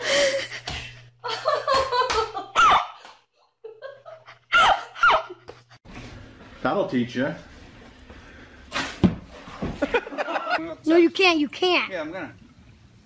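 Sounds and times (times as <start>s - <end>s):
woman laughing: 0.0s - 2.8s, 3.6s - 5.8s.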